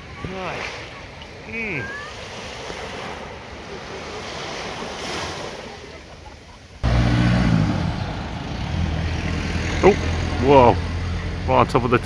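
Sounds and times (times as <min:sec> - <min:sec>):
waves washing on a beach: 0:00.0 - 0:12.0
loud vehicle engine running: 0:06.8 - 0:12.0.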